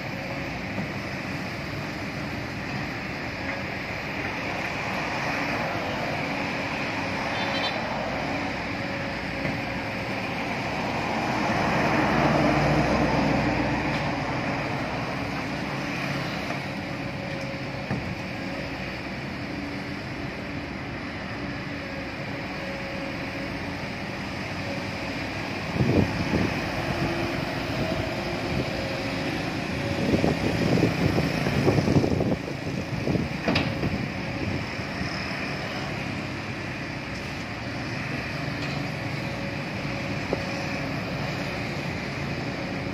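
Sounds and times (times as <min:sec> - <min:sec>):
excavator diesel engine: 0:00.0 - 0:42.9
heavy machinery rumbles: 0:00.0 - 0:42.9
road traffic: 0:00.0 - 0:42.9
vehicle passing: 0:10.2 - 0:16.7.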